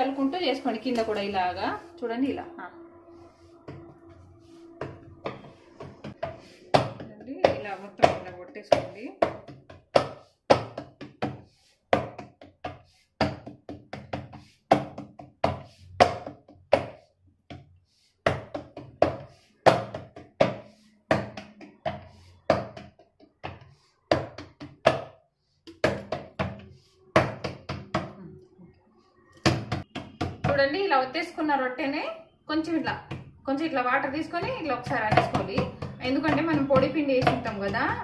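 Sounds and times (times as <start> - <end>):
palms patting dough on wooden board: 4.5 - 28.2, 29.3 - 30.8, 32.7 - 38.0.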